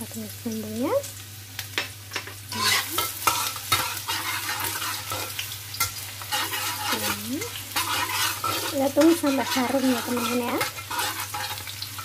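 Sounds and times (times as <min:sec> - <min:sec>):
vegetables sizzling in hot oil: 0:00.0 - 0:12.0
metal spatula scraping a wok: 0:02.5 - 0:12.0.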